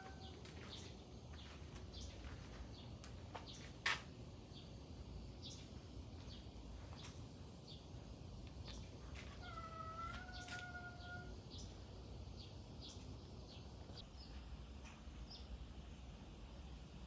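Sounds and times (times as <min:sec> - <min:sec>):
cat meowing: 0:00.0 - 0:00.4, 0:09.4 - 0:11.4.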